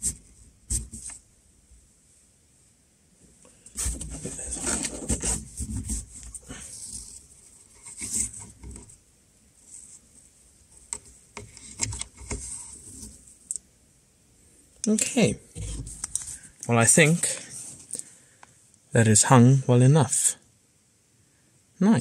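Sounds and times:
hands rubbing and rustling: 0:15.6 - 0:18.0.

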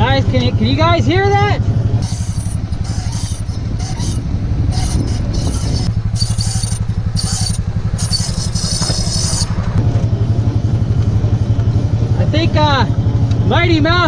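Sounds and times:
engine running low throb: 0:00.0 - 0:14.0
brake pads squealing and scraping: 0:02.0 - 0:09.8.

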